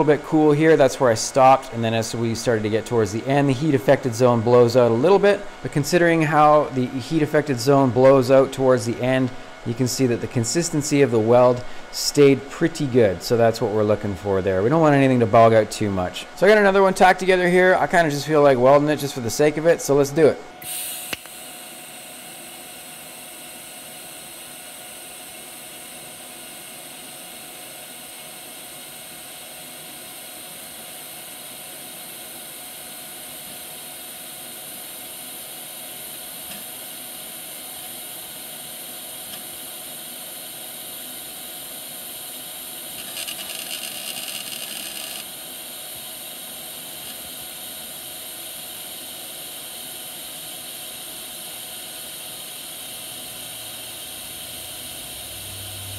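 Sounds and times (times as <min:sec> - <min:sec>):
welding arc hissing: 0:20.6 - 0:28.0, 0:39.2 - 0:55.9.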